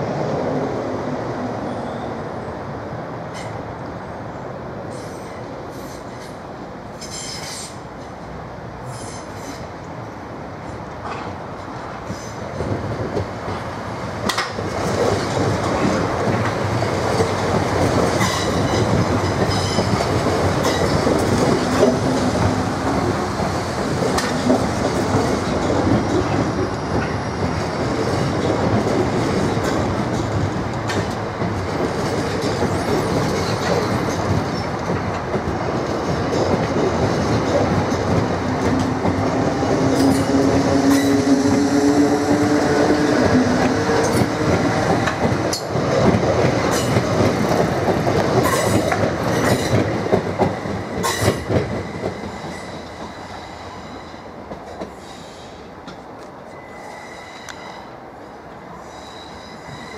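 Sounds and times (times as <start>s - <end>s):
train wheels clattering over rails: 10.8s - 56.3s
train rising whine: 36.7s - 59.9s.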